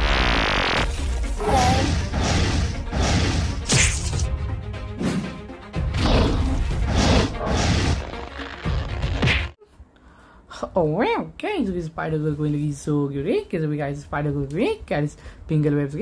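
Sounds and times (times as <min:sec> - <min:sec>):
background music: 0:00.6 - 0:09.6
cartoon punch impacts: 0:01.6 - 0:04.2, 0:05.9 - 0:09.6.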